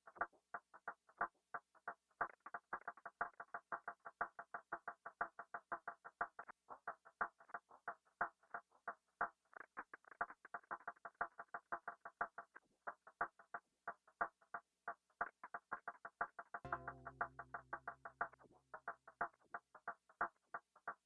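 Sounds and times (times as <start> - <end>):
synthesizer plucky notes: 16.7 - 18.6.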